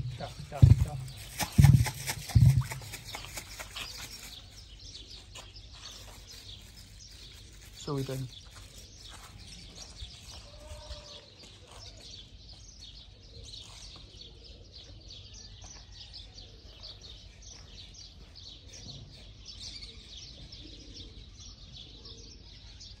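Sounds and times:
low ambient rumble: 0:00.0 - 0:02.9
small birds chirping: 0:00.0 - 0:23.0.

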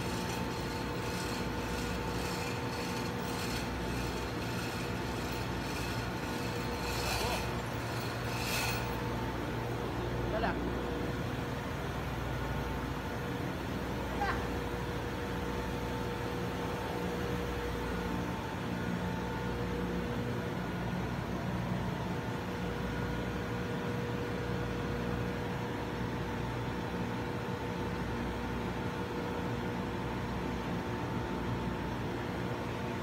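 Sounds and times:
whining tones: 0:00.0 - 0:09.4
engine room machinery hum: 0:00.0 - 0:33.0.

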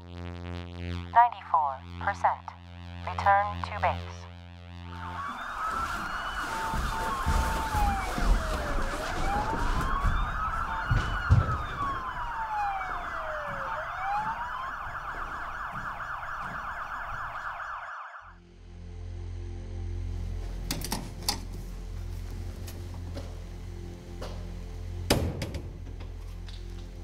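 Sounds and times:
wailing siren: 0:00.0 - 0:19.7
electronic drone: 0:00.0 - 0:20.7
low thumps: 0:04.9 - 0:17.6.

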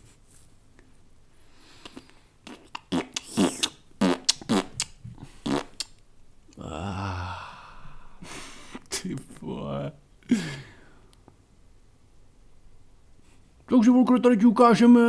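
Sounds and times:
comic fart noises: 0:02.4 - 0:05.9.

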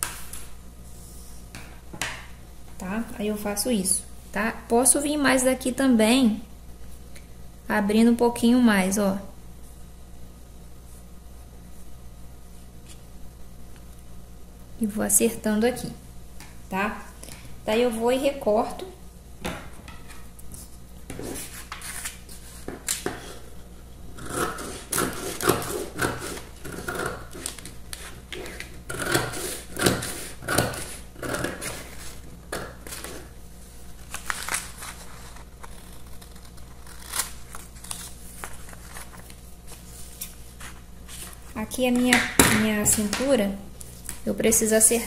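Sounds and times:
paper rustling: 0:21.3 - 0:23.1, 0:33.9 - 0:41.6
scissors snipping paper: 0:35.6 - 0:38.1.

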